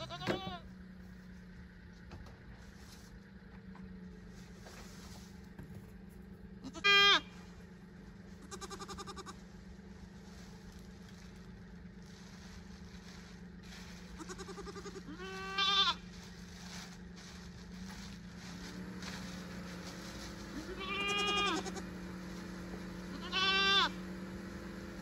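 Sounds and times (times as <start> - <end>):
goats bleating: 0.0 - 0.6, 6.6 - 7.3, 8.4 - 9.4, 14.2 - 16.1, 20.5 - 22.0, 23.0 - 24.1.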